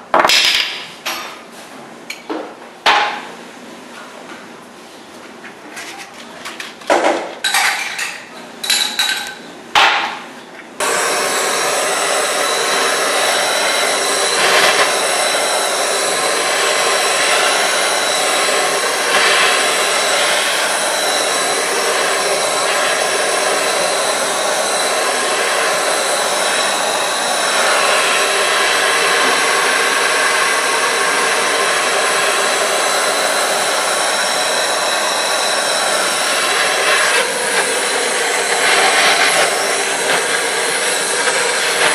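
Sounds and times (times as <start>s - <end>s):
blowtorch hissing: 10.8s - 41.9s.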